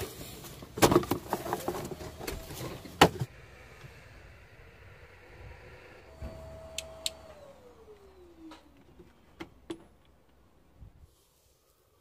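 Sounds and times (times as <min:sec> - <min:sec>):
plastic and rubber hose clatter: 0:00.0 - 0:03.3.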